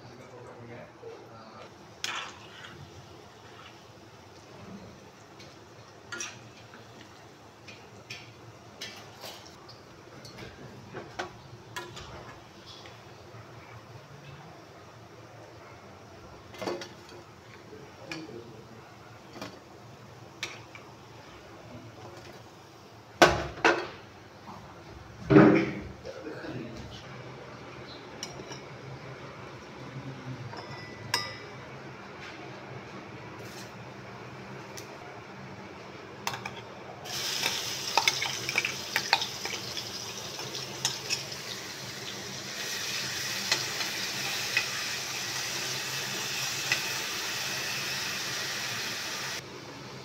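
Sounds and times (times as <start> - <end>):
onion and garlic sizzling in oil: 37.0 - 50.0.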